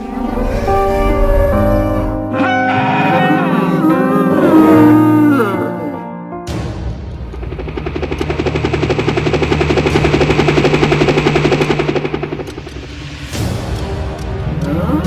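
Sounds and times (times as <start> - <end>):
helicopter engine hum: 7.1 - 13.4
helicopter rotor chop: 7.1 - 13.6.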